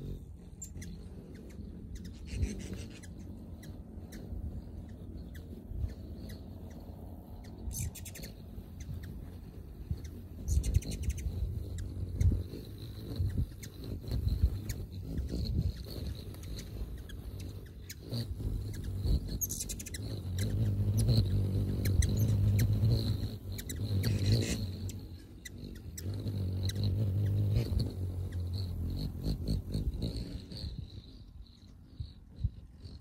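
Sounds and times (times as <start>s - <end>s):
hummingbird wings humming: 0.0s - 33.0s.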